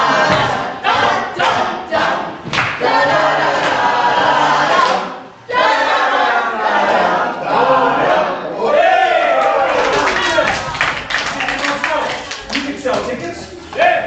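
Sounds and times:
crowd cheering and shouting: 8.6s - 10.7s
clapping: 9.7s - 13.1s.

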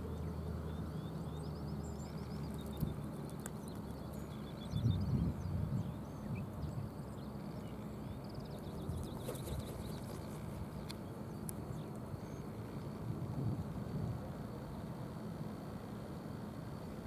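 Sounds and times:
songbirds singing: 0.0s - 13.2s
low outdoor rumble: 0.0s - 17.0s.

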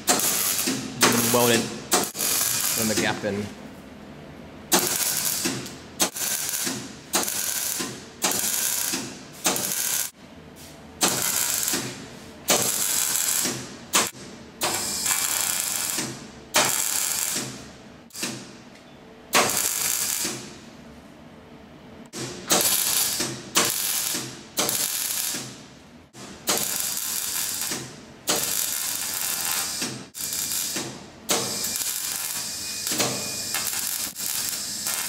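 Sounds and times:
welder arc crackling: 0.0s - 3.3s, 4.7s - 10.2s, 11.0s - 17.5s, 19.4s - 20.5s, 22.5s - 25.6s, 26.4s - 35.0s.

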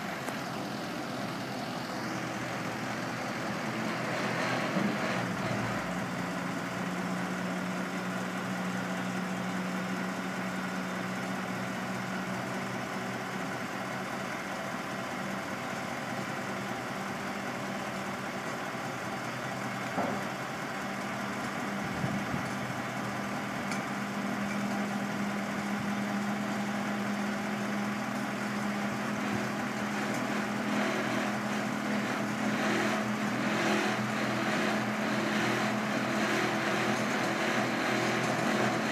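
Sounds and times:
truck engine running: 0.0s - 38.9s.

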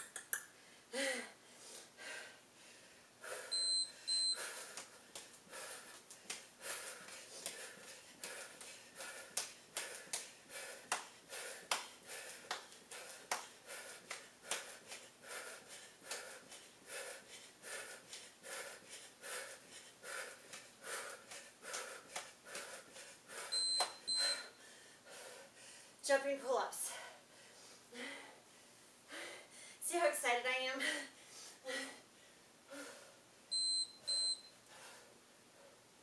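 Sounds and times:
hard breathing: 0.6s - 26.0s, 26.8s - 29.8s, 30.8s - 33.3s, 34.6s - 35.9s
short electronic beeps: 3.5s - 4.4s, 23.6s - 24.5s, 33.5s - 34.5s.

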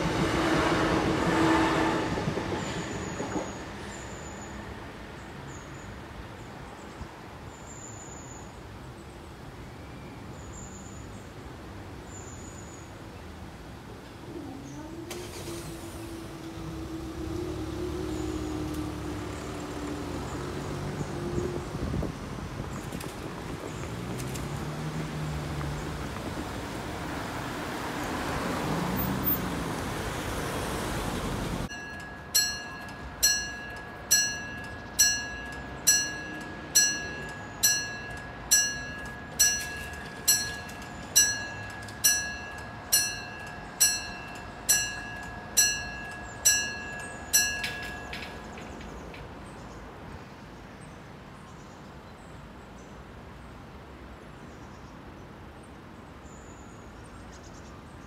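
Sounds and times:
road traffic passing: 0.0s - 7.7s, 10.2s - 58.0s
level crossing bell striking: 31.7s - 48.6s.

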